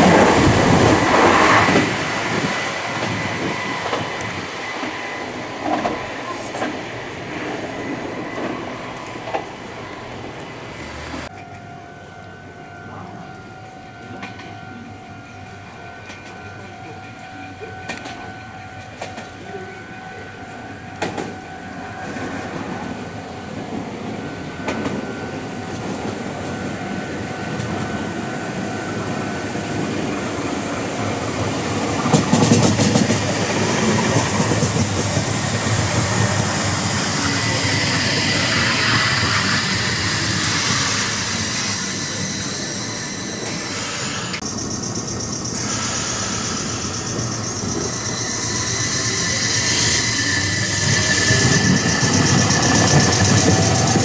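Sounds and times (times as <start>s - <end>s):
train wheels clicking over rail joints: 29.8s - 54.0s
high-pitched whine and squeal: 32.7s - 54.0s.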